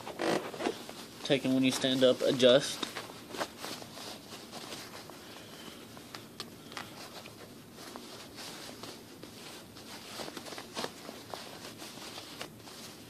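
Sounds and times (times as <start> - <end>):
fabric rustling and scraping: 0.0 - 13.0.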